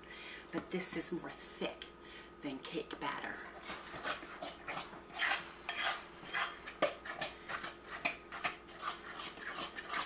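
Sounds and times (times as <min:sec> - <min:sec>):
spoon stirring thick batter: 0:03.4 - 0:10.0.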